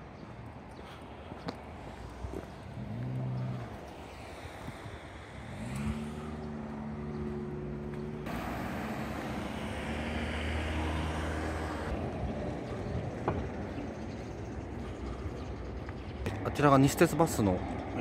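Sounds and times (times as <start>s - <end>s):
vehicle passing by: 1.9s - 18.0s.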